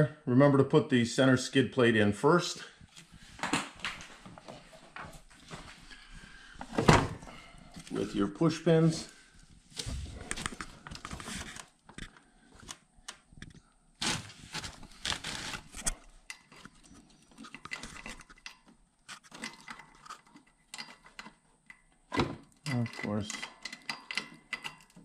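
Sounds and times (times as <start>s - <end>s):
clicks and taps of fasteners: 19.3s - 25.0s.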